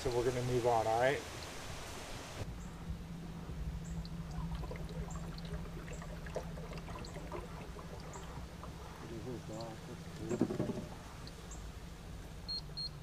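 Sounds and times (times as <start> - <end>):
water gurgling around hull: 2.2 - 12.5
electric trolling motor humming: 2.5 - 13.0.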